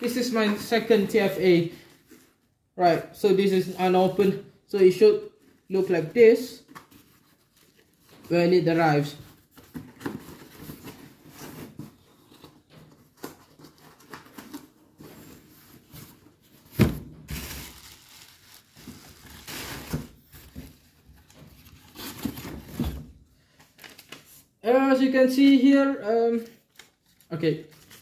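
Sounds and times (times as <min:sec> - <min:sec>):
packaging rustling and crinkling: 0:06.6 - 0:08.4, 0:09.1 - 0:24.5, 0:26.6 - 0:28.0.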